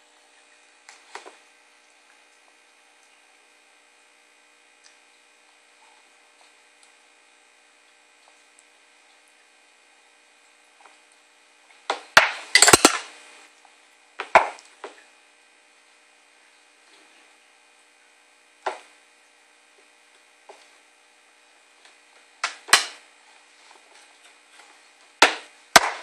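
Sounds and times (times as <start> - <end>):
spoon and bowl clattering on tray: 12.6 - 13.0.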